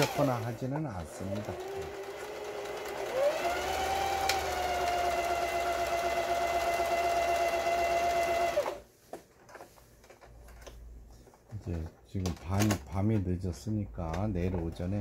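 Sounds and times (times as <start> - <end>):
sewing machine motor whine: 0.0 - 8.8.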